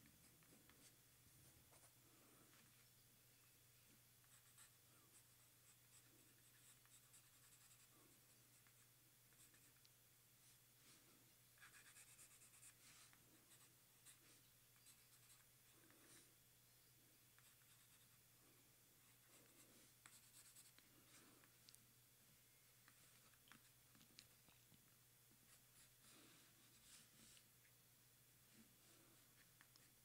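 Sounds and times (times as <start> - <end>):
pencil scratching on paper: 4.2 - 9.8, 11.6 - 16.3, 17.4 - 18.2, 19.3 - 21.3.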